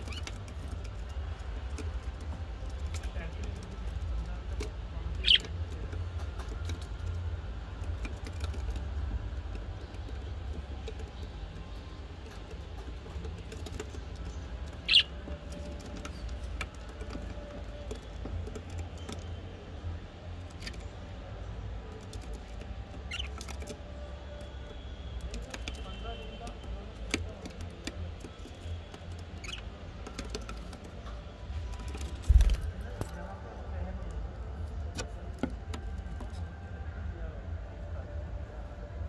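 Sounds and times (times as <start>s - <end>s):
budgerigar chirps: 5.2s - 5.5s, 14.8s - 15.1s, 23.1s - 23.3s.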